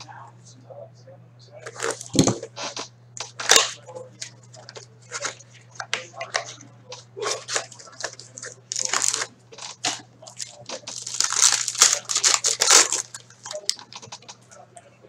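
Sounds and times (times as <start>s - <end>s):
card pack foil crinkling and ripping: 1.6s - 2.4s, 3.2s - 14.3s.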